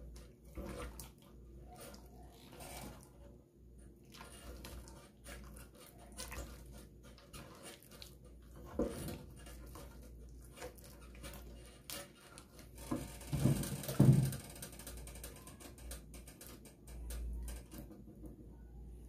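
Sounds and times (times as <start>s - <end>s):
thick paste squelching: 0.0s - 12.8s
spoon scraping metal pot: 4.2s - 12.8s.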